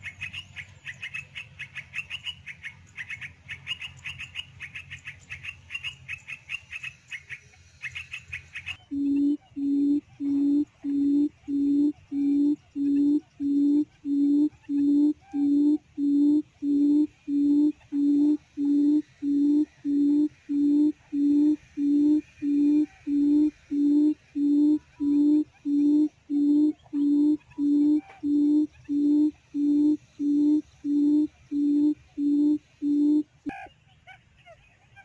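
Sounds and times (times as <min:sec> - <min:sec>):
quail lure call hooting: 0:08.6 - 0:33.7.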